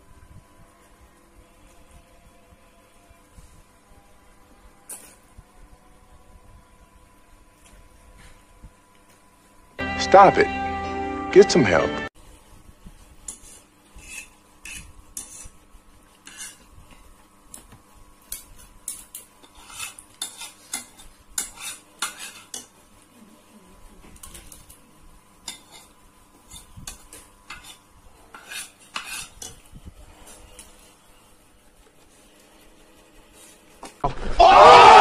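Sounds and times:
cutlery clinking against a bowl: 4.9 - 5.2, 18.2 - 22.8, 25.4 - 29.6.

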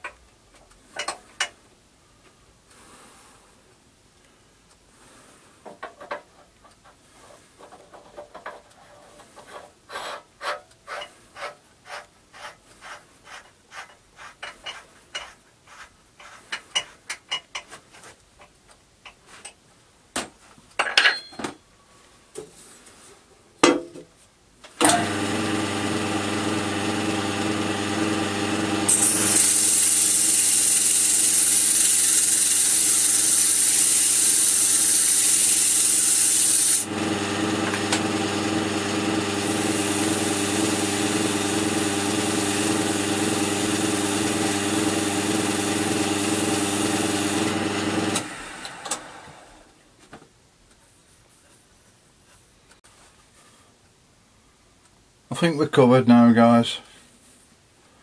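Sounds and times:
sanding sponge rubbing hiss: 9.9 - 17.0
wood lathe humming: 24.8 - 49.7.

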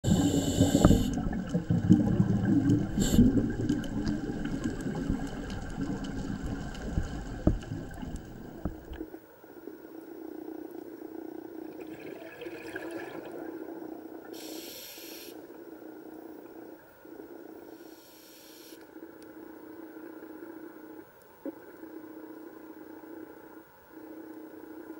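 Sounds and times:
regulator inhale hiss: 0.0 - 1.3, 2.9 - 3.4, 14.3 - 15.5, 17.7 - 18.9
exhaled bubbles underwater: 0.0 - 9.1, 11.5 - 14.5
low steady hum: 0.0 - 24.9.

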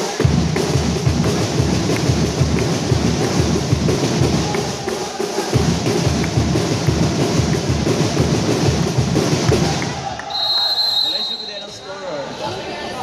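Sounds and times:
heavy fast drumming: 0.0 - 10.2.

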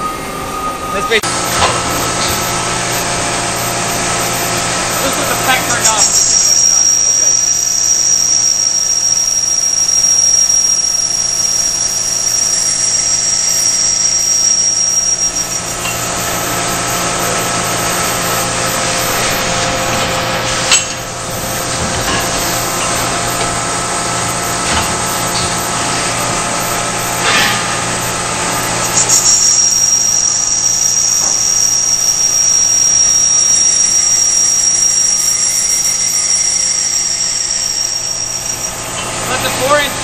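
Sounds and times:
high mechanical whine: 0.0 - 40.0
lathe machining metal tube: 0.0 - 40.0.

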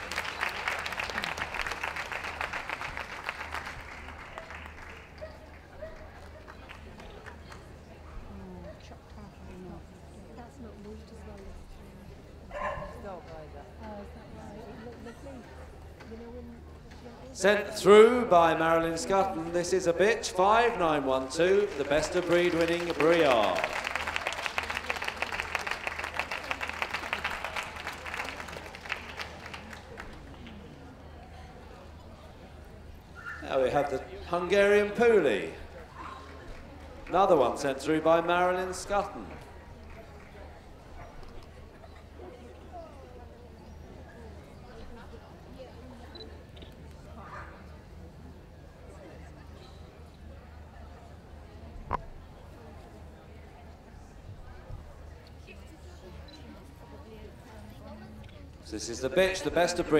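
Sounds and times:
audience applauding: 0.0 - 7.7, 20.6 - 30.5.

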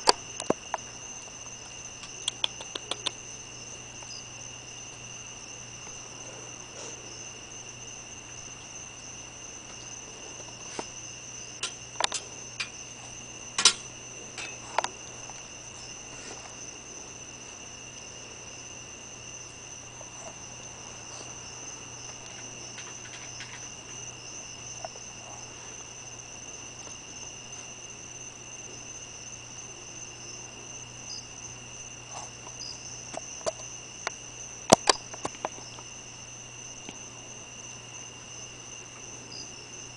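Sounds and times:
insects trilling: 0.0 - 39.9
sharp clicks: 2.0 - 3.2.

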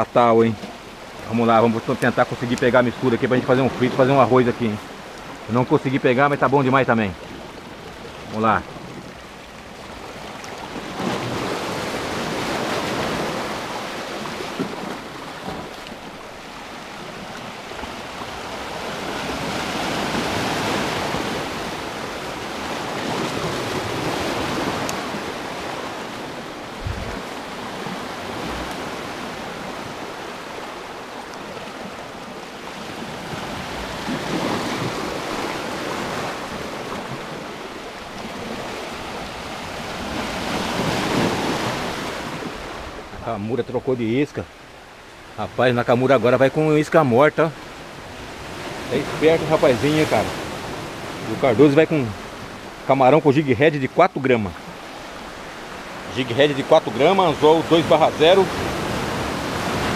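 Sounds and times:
sea waves breaking over rocks: 0.0 - 59.9
wind thumps on microphone: 26.7 - 27.3.

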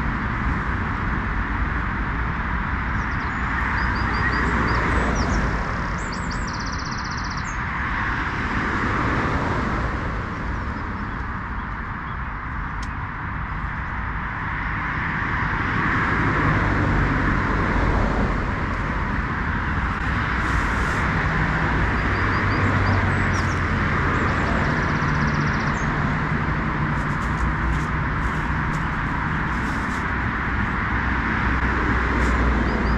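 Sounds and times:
road traffic rushing: 0.0 - 32.9
tent clicks and rustles: 26.9 - 30.4.

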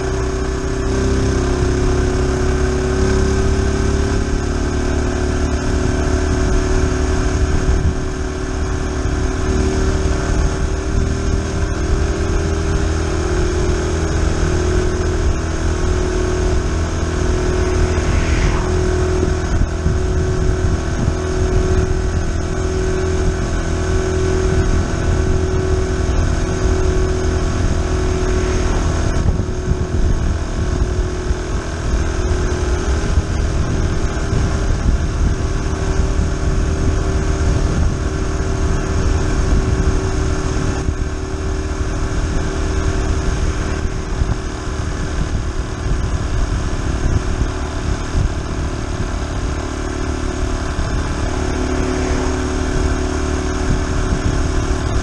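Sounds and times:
motorcycle engine running: 0.0 - 55.0
wind noise on microphone: 0.0 - 55.0
car passing: 15.2 - 21.2, 25.9 - 30.6, 50.6 - 53.8.

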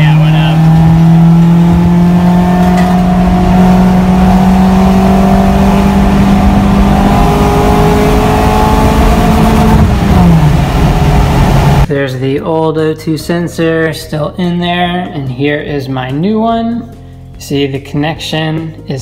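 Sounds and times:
car engine accelerating: 0.0 - 11.9.

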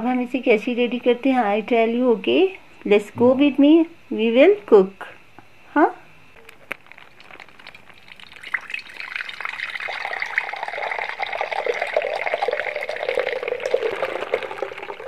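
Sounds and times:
milk pouring into clay pot: 6.6 - 15.0.

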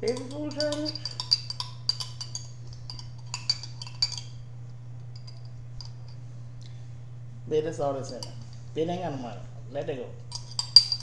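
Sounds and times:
metal spoon clinking in glass jar: 0.0 - 4.5, 5.1 - 6.2, 8.1 - 8.6, 10.3 - 11.0.

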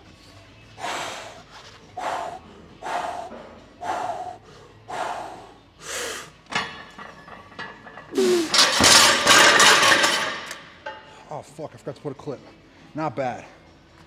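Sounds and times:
man's sharp forceful breaths: 0.8 - 6.3.

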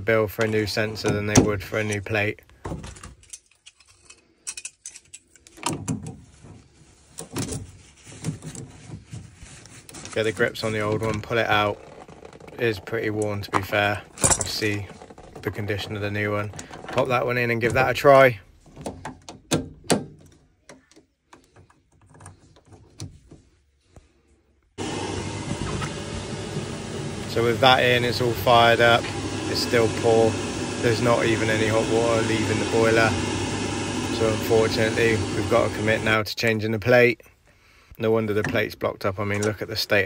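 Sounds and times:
hand tools clicking and rattling: 2.9 - 5.8
boiler running rushing noise: 24.8 - 36.2.

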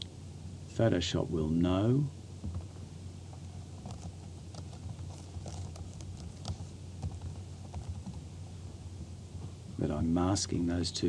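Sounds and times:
computer keyboard typing: 3.8 - 8.3.

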